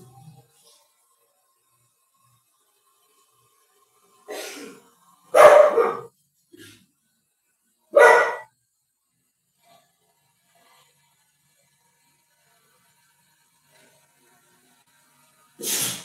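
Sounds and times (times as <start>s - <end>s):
dog barking: 5.3s - 6.1s, 8.0s - 8.5s.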